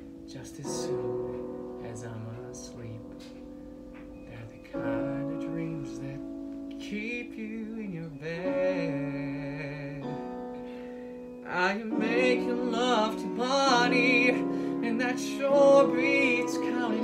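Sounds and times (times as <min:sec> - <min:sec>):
piano accompaniment: 0:00.0 - 0:17.0
man singing with vibrato: 0:04.3 - 0:10.5, 0:11.4 - 0:17.0.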